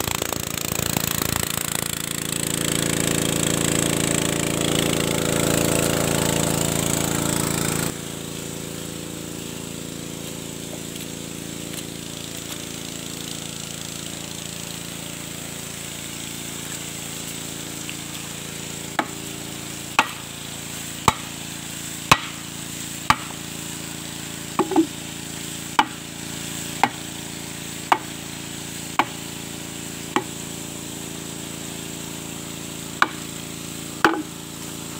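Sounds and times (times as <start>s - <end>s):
small engine running: 0.0s - 34.9s
sharp knocks on a pipe: 19.0s - 19.2s, 20.0s - 20.2s, 21.1s - 21.3s, 22.1s - 22.4s, 23.1s - 23.4s, 24.6s - 24.9s, 25.8s - 26.0s, 26.8s - 27.0s, 27.9s - 28.1s, 29.0s - 29.2s, 30.2s - 30.4s, 33.0s - 33.2s, 34.0s - 34.3s.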